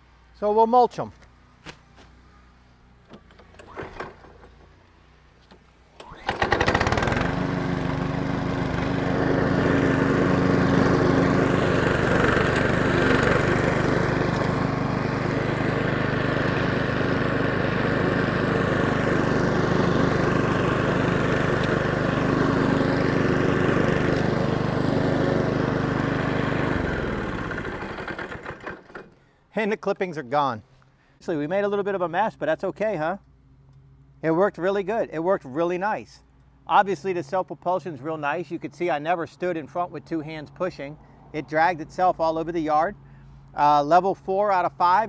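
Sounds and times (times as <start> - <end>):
lawn mower engine running: 2.9 - 29.3
mower blade mulching grass: 6.0 - 29.1.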